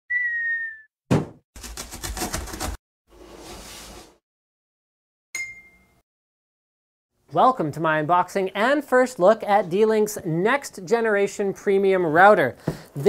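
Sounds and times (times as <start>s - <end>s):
heavy thud: 1.1s - 1.4s.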